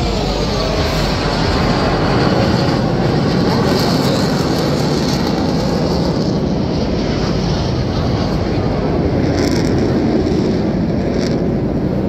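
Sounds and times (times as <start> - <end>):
jets roaring overhead: 0.0 - 12.0.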